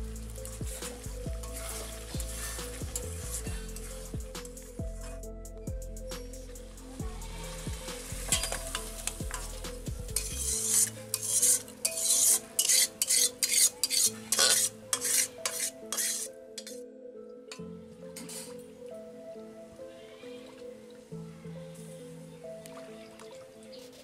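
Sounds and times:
metal spoon scraping a wok: 7.3s - 16.8s.

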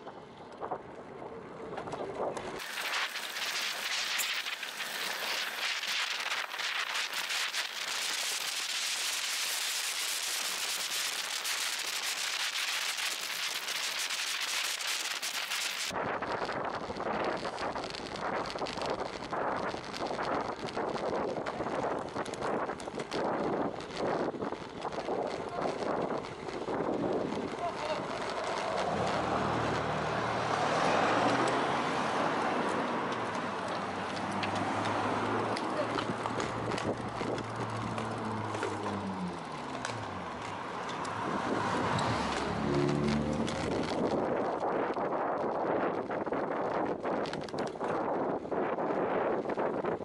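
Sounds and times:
low rumble of wind: 0.0s - 50.0s
wind and road noise hiss: 0.0s - 50.0s
car passing by: 27.7s - 44.0s.

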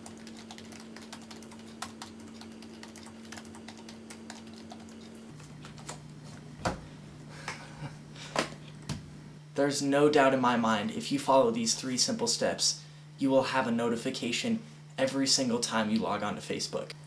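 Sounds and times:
computer keyboard typing: 0.0s - 5.2s.

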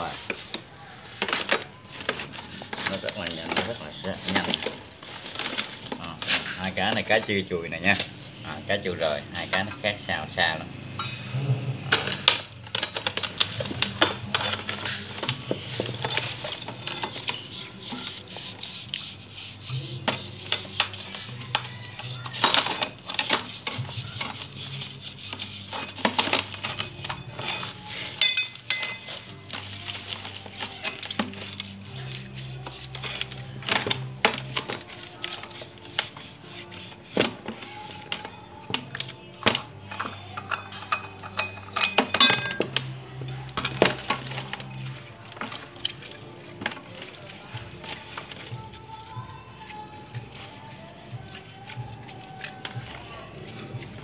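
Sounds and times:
scouring pad scrubbing: 0.0s - 7.3s, 13.8s - 28.0s, 29.1s - 39.3s, 42.9s - 54.0s.

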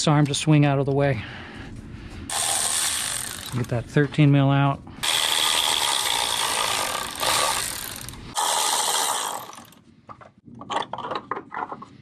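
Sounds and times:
ratchet spinning bolt: 2.3s - 3.7s, 5.0s - 9.8s.

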